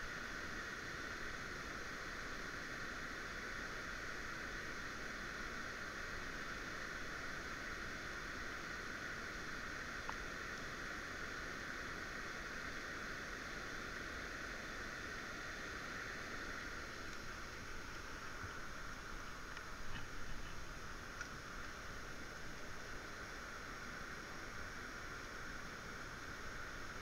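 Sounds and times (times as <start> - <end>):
river water rushing: 4.8 - 27.0
faint ticks: 10.0 - 10.3, 17.0 - 18.6, 19.4 - 21.4.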